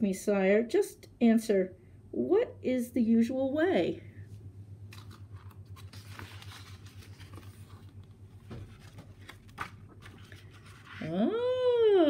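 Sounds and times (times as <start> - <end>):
low steady hum: 0.0 - 12.0
book pages turning: 4.9 - 11.2.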